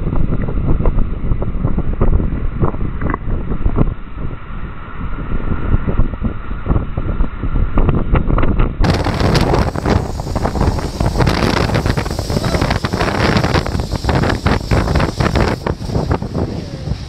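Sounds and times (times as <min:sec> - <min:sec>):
wind buffeting microphone: 0:00.0 - 0:17.0
snow tubes sliding over snow: 0:08.8 - 0:17.0.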